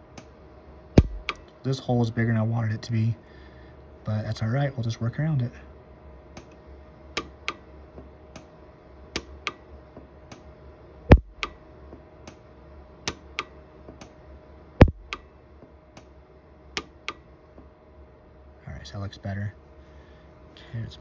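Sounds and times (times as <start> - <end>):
welder sharp snaps: 1.0 - 1.6.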